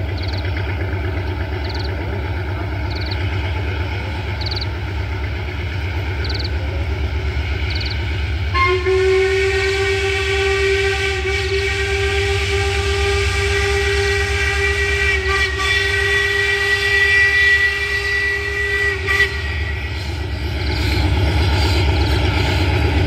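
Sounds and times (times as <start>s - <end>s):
train running noise: 0.0s - 23.0s
steam locomotive whistle: 7.7s - 20.4s.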